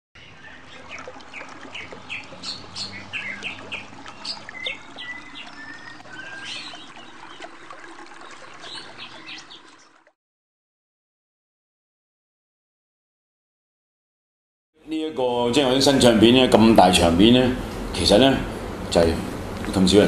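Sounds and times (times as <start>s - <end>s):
whistled bird notes: 0.2s - 9.9s
birds chirping: 0.2s - 10.2s.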